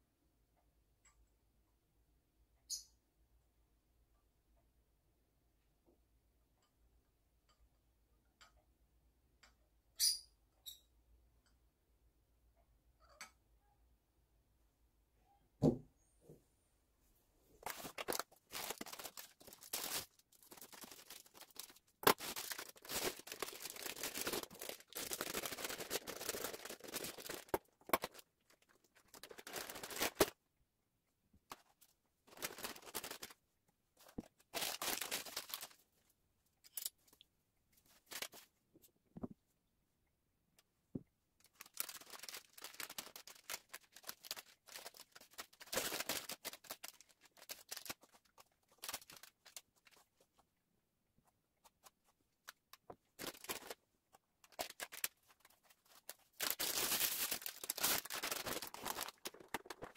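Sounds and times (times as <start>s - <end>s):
paper and packaging rustling: 17.6s - 30.4s, 31.5s - 33.4s, 34.0s - 35.8s, 37.9s - 38.5s, 41.4s - 50.4s, 51.6s - 53.8s, 54.4s - 59.9s.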